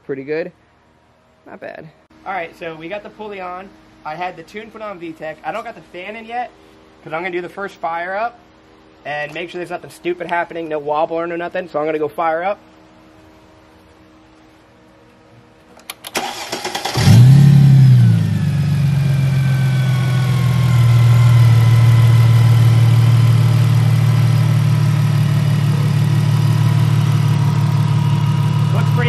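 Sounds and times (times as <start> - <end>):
car engine cranking by starter: 15.8 - 29.0
car engine revving and idling: 16.3 - 29.0.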